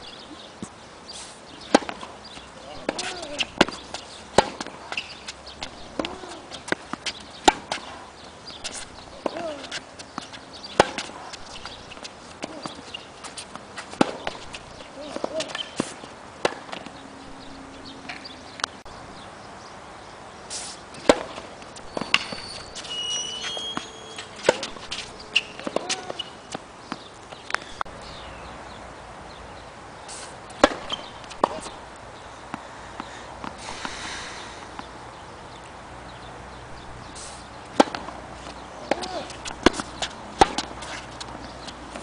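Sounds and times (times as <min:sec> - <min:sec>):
tennis ball struck by racket: 0:01.6 - 0:18.3, 0:21.0 - 0:27.9, 0:30.5 - 0:31.8, 0:32.5 - 0:34.9, 0:37.4 - 0:42.0
ball bouncing: 0:01.7 - 0:07.9, 0:08.5 - 0:18.8, 0:21.0 - 0:27.8, 0:30.5 - 0:31.8, 0:37.7 - 0:42.0
footsteps: 0:21.0 - 0:27.9.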